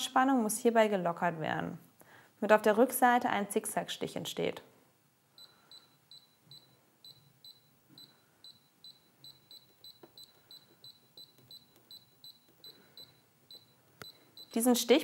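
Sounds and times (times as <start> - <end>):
sewing machine button beeps: 5.4 - 14.7.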